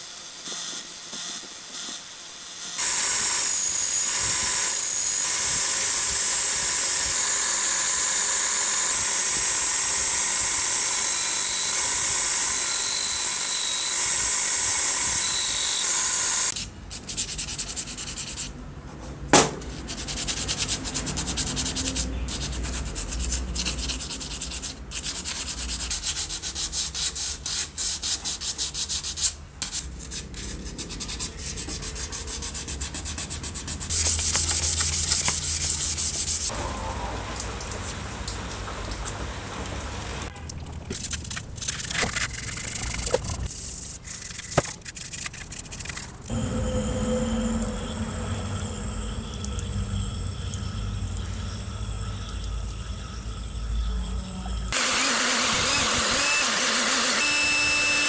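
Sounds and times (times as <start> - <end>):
hand-sanding plastic: 16.5 - 18.5, 19.6 - 36.5.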